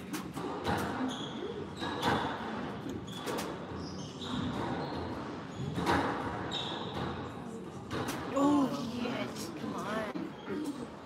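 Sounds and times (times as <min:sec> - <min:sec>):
shoes squeaking on hardwood floor: 0:02.9 - 0:07.1.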